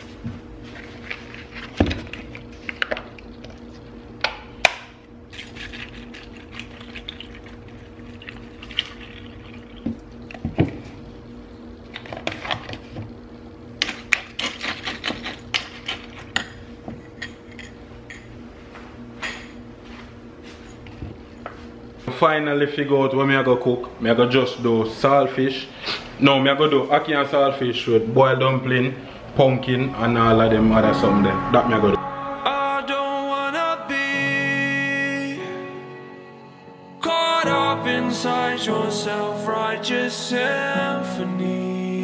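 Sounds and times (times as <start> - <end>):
milk pouring over cereal: 5.4 - 10.3
low hum: 28.0 - 38.2.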